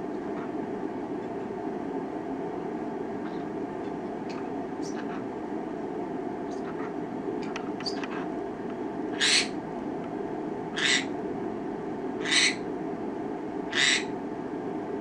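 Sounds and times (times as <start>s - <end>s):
parrot screeching calls: 9.1s - 9.6s, 10.7s - 11.1s, 12.2s - 12.6s, 13.7s - 14.1s.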